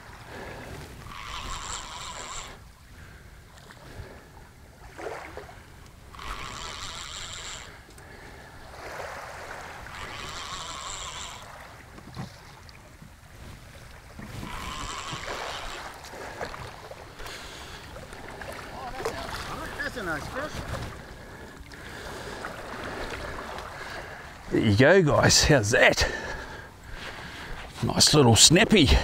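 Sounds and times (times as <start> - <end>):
shallow water washing: 0.0 - 29.0
wind: 0.0 - 29.0
fishing reel cranking: 1.0 - 2.6, 6.1 - 7.9, 9.9 - 11.6, 14.4 - 16.0.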